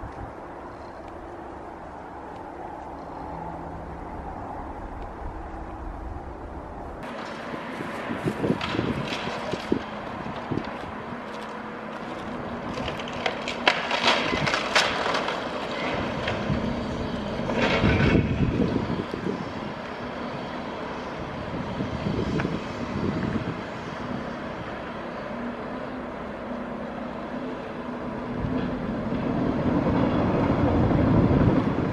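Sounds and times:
diesel engine running: 0.0s - 31.9s
falling debris: 12.0s - 18.6s
concrete breaking and crashing: 12.7s - 16.7s.

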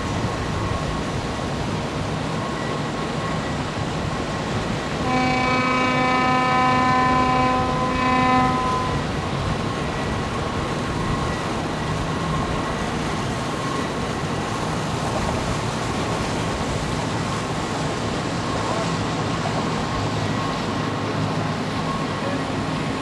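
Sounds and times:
motorboat passing: 0.0s - 23.0s
horn blast: 5.0s - 9.1s.

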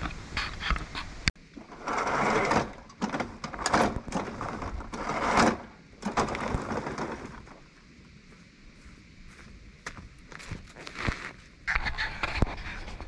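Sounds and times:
lawn mower scraping and knocking: 1.5s - 7.7s.

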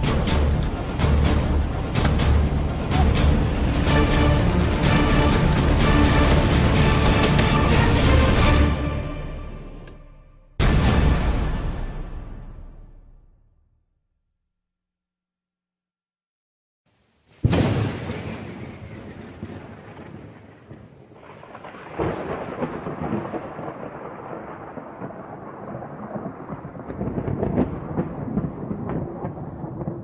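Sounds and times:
thunder-like crash and rumble: 17.4s - 30.0s.

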